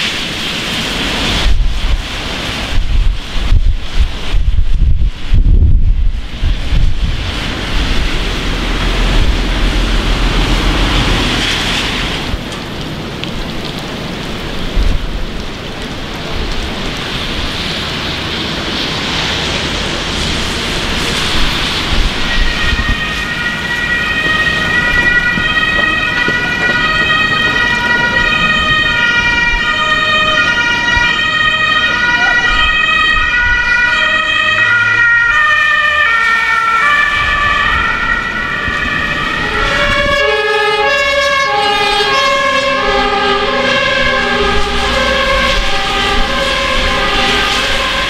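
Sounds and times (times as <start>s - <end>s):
heavy rain: 0.0s - 48.0s
wind buffeting microphone: 0.0s - 48.0s
two-tone siren: 21.4s - 48.0s.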